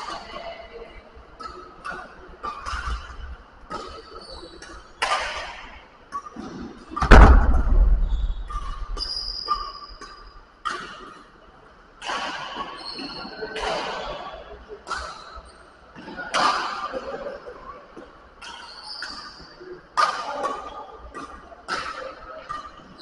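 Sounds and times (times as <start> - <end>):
racket hitting shuttlecock: 1.4 - 6.2, 7.0 - 11.2
shoe squeak: 3.8 - 5.0, 7.9 - 10.4, 12.7 - 13.5, 18.4 - 19.6
heavy thump with low rumble: 7.0 - 9.1.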